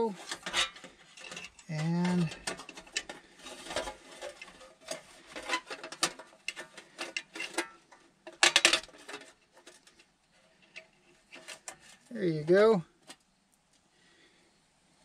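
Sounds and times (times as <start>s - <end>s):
light metal clicks and rattles: 0.1s - 12.1s.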